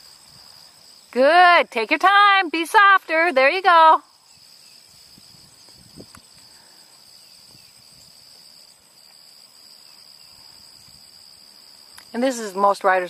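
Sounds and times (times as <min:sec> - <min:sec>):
high-pitched insect chirring: 0:00.0 - 0:13.0.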